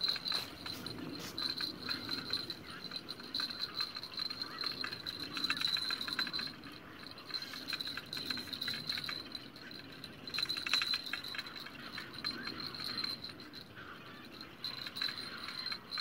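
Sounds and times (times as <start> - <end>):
crickets trilling: 0.0 - 16.0
insects clicking rapidly: 0.0 - 16.0.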